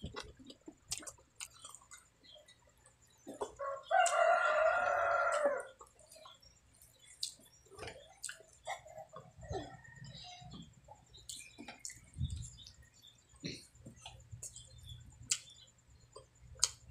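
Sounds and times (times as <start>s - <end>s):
person chewing: 0.0s - 2.1s, 3.2s - 10.3s, 11.1s - 12.8s, 13.4s - 15.5s, 16.1s - 16.9s
rooster crowing: 3.6s - 5.8s.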